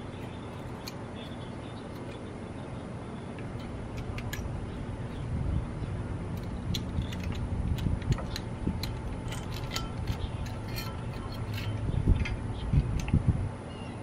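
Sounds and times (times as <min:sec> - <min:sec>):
metallic clicks and scrapes on brake: 0:00.0 - 0:02.3, 0:03.2 - 0:05.3, 0:06.3 - 0:13.1.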